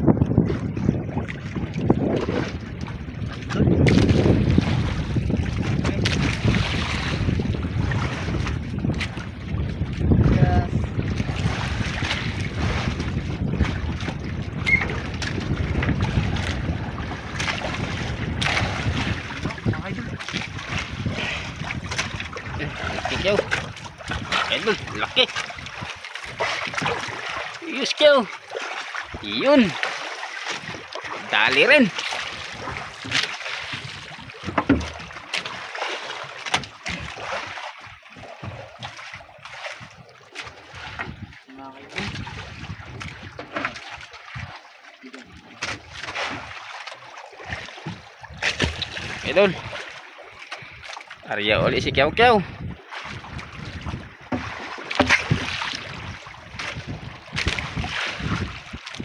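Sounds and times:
wind buffeting microphone: 0.0s - 28.2s, 36.9s - 44.6s, 50.6s - 59.0s
open sea wash: 0.0s - 59.0s
water around boat: 0.0s - 59.0s
brief high squeak: 14.6s - 15.0s
knocks against boat: 32.6s - 35.6s, 36.4s - 37.2s, 54.3s - 55.8s.

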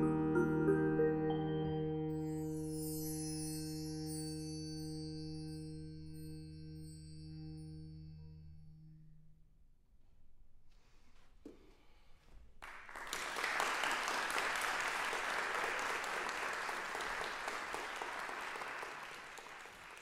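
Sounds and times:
audience applauding: 12.6s - 20.0s.

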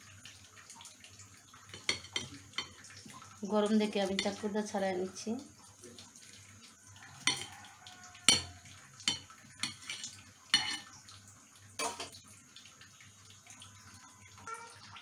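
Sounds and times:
knife clinking on a plate: 1.8s - 2.8s, 7.2s - 7.5s, 8.3s - 10.9s.

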